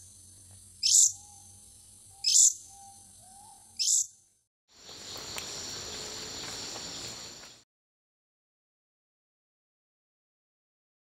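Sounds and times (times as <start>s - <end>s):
high-pitched warbled bird notes: 0.8s - 1.5s, 2.2s - 4.2s
steady high-pitched hiss: 4.8s - 7.6s.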